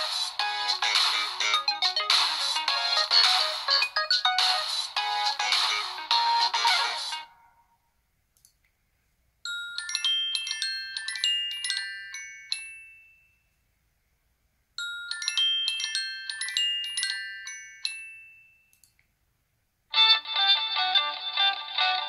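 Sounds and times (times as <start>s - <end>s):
phone ringtone chiming melody: 0.0s - 7.6s, 9.5s - 13.5s, 14.8s - 18.7s.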